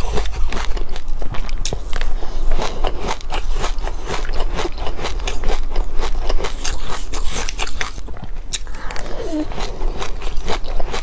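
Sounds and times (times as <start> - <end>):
chewing crunchy seeds: 0.0 - 11.0.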